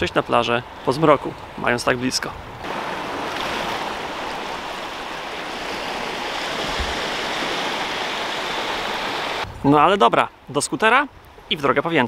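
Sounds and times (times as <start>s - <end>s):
small waves washing onto beach: 0.6s - 9.5s.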